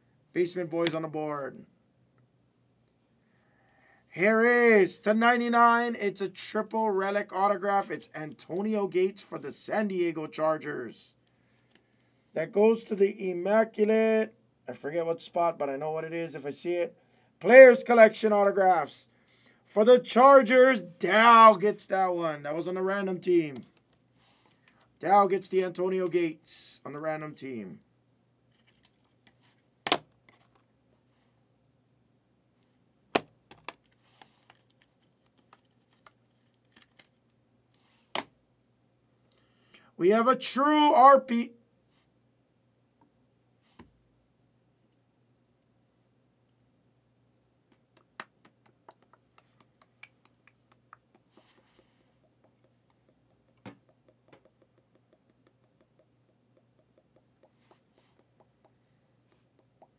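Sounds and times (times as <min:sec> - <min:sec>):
trading cards clicking and tapping: 0:47.8 - 0:59.9
plastic ticks and rubbing: 0:48.0 - 0:59.9.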